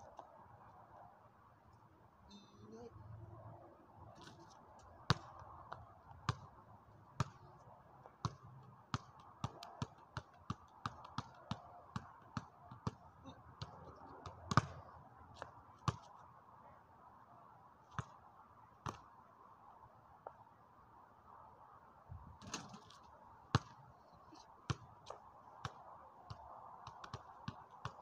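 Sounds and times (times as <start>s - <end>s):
basketball bouncing on pavement: 5.1s - 6.6s, 7.2s - 16.1s, 17.9s - 18.2s, 18.8s - 19.0s, 22.4s - 23.8s, 24.7s - 28.0s.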